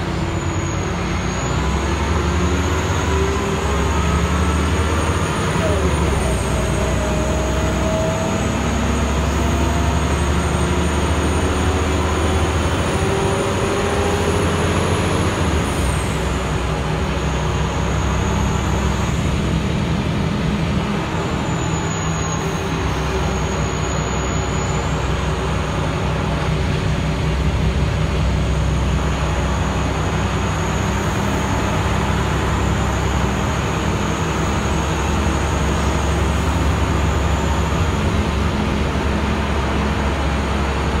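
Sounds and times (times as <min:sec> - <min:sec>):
whine rising in pitch: 0:00.0 - 0:27.0
bus diesel engine running: 0:00.0 - 0:41.0.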